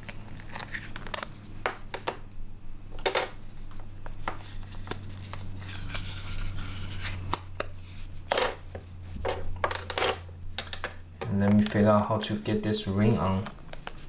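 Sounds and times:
steady low hum: 0.0 - 14.0
rubbing and scraping: 3.2 - 10.3.

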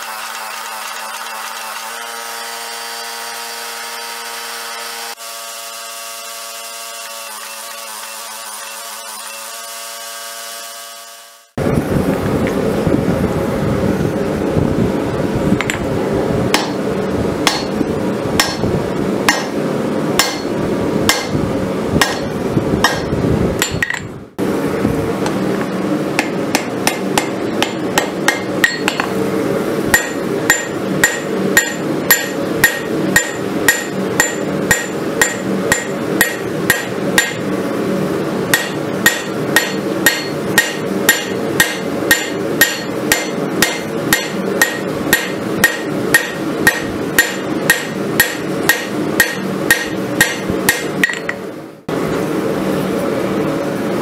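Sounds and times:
hammer clanging on metal: 20.2 - 20.5, 26.2 - 29.1, 38.6 - 51.4.

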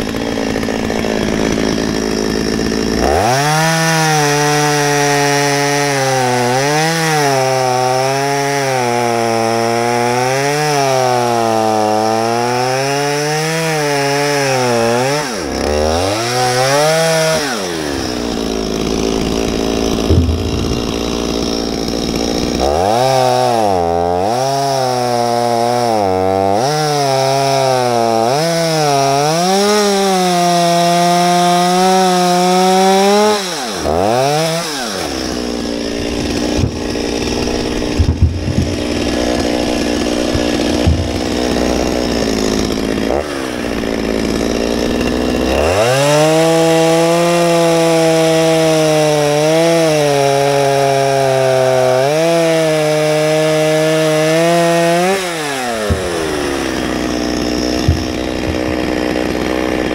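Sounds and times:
chainsaw cutting log: 0.0 - 59.9
knocks: 19.9 - 21.6, 37.9 - 38.8, 40.3 - 41.4.

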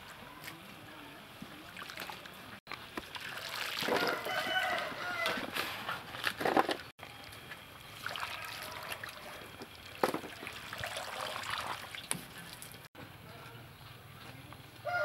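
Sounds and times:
water sloshing and splashing: 1.4 - 12.9.

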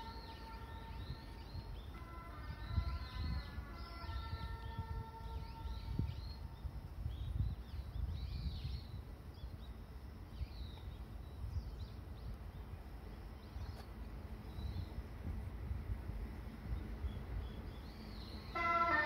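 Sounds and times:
small birds chirping: 5.4 - 15.0.

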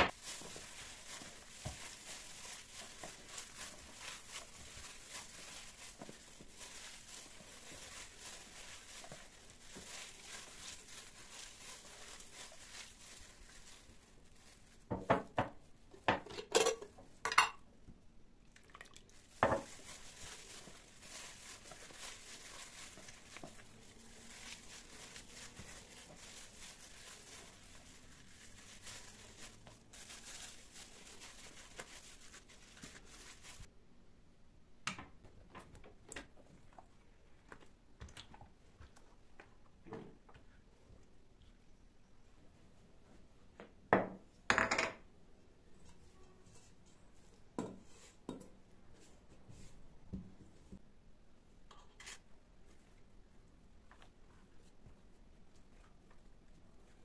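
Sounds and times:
plastic rustling: 0.1 - 16.0, 18.7 - 33.7.

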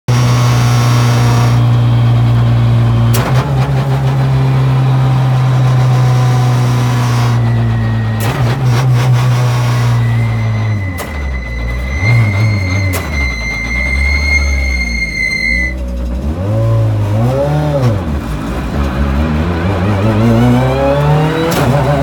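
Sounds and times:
car engine from inside cabin: 0.1 - 10.4, 15.6 - 22.0.

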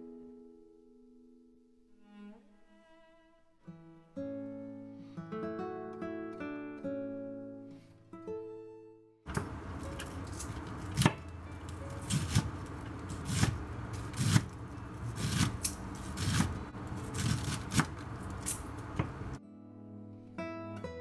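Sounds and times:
knife chopping on wooden board: 10.3 - 11.3, 12.0 - 19.3.

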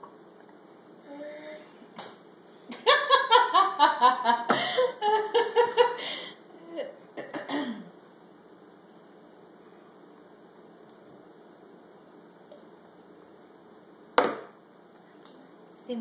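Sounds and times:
person laughing: 2.7 - 6.3.

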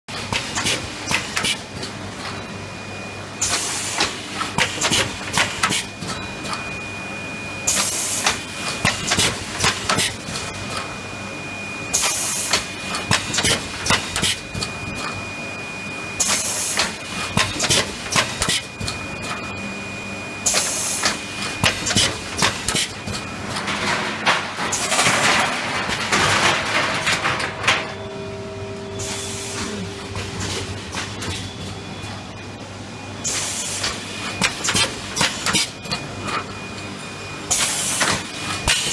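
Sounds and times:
steady high whine: 18.7 - 37.6
machine parts clattering: 23.6 - 28.0.

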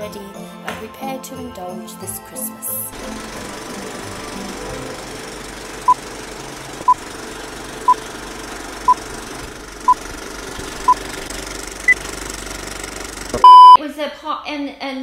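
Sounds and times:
mechanical rattle and hiss: 3.0 - 13.4
higher-pitched beep: 13.4 - 13.8
short beeps: 13.4 - 13.8.

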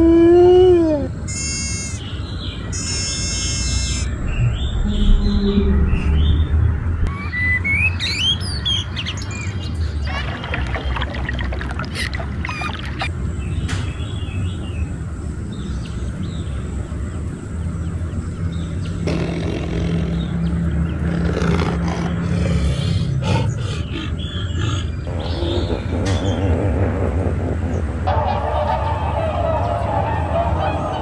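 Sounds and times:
tiger growling: 19.0 - 30.9.

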